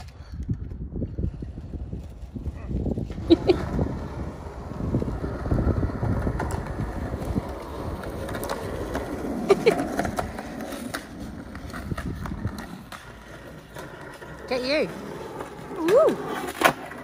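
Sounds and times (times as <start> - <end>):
skateboard wheels rolling on asphalt: 0.0 - 17.0.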